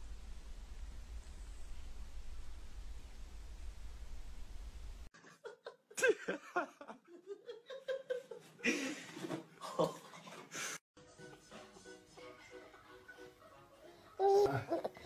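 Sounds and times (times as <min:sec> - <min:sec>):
low steady hum: 0:00.0 - 0:05.1
person laughing and giggling: 0:05.2 - 0:10.4.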